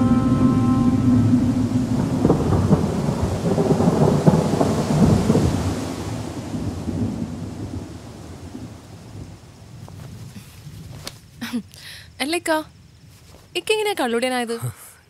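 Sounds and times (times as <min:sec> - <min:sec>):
thunder rolling: 0:00.0 - 0:10.8
rain: 0:00.0 - 0:13.6.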